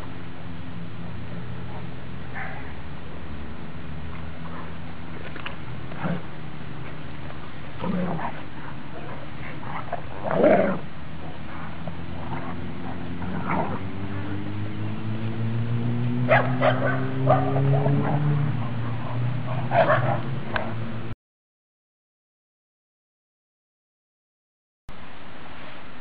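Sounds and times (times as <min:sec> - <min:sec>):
rising drone: 0:00.0 - 0:21.1
steady low hum: 0:00.0 - 0:21.2
dogs barking and yipping: 0:02.3 - 0:02.8, 0:04.4 - 0:14.4, 0:16.2 - 0:21.0.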